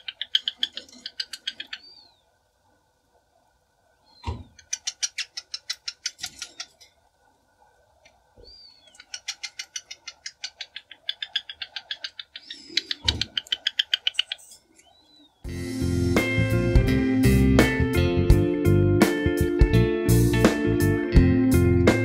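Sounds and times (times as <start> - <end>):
cockatiel chirping: 0.0 - 2.2, 8.4 - 15.4.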